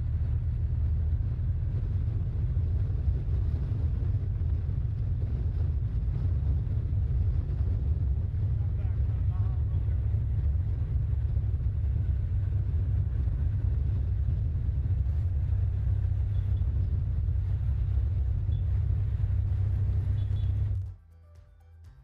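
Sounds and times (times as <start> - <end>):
wind buffeting microphone: 0.0 - 20.9.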